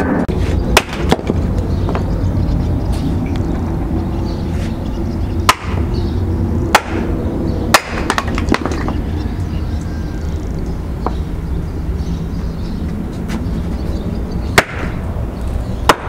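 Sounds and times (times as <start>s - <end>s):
sharp knocks: 0.0s - 2.1s, 5.5s - 5.9s, 6.7s - 7.1s, 7.7s - 9.0s, 14.6s - 15.0s
steady low rumble: 0.0s - 16.0s.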